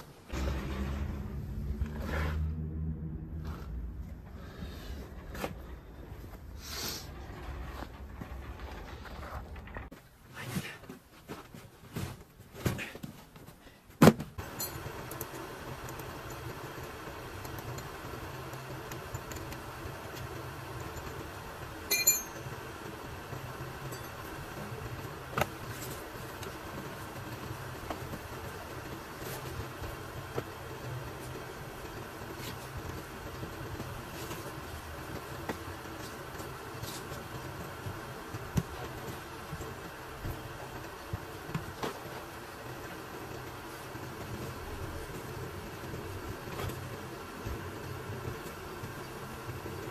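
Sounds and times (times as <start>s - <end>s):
engine idling: 0.3s - 7.9s
sharp metallic clink: 21.9s - 22.4s.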